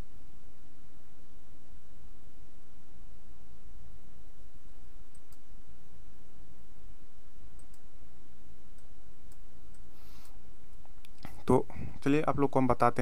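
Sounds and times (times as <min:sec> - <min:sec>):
low background hum: 0:00.0 - 0:13.0
computer mouse clicks: 0:05.1 - 0:05.5, 0:07.6 - 0:07.9.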